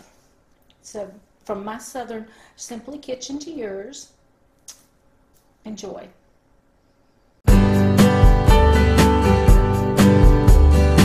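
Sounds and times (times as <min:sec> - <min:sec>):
loud music with steady beat: 0:07.5 - 0:11.0.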